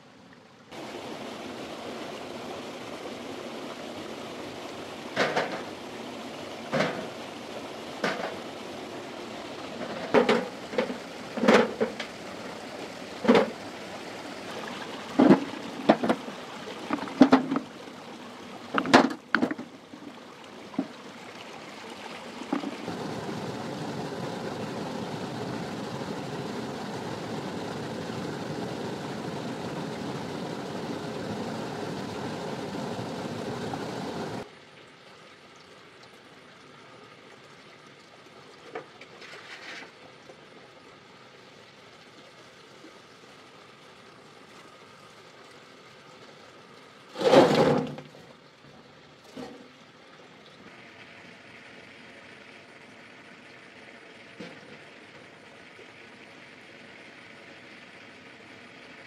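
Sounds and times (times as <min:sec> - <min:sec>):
steady rushing noise: 0:22.8 - 0:34.4.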